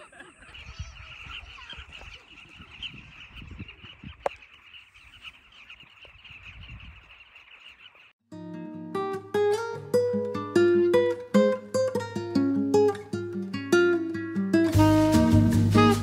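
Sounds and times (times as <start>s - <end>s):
flock of birds chattering: 0.0s - 8.2s.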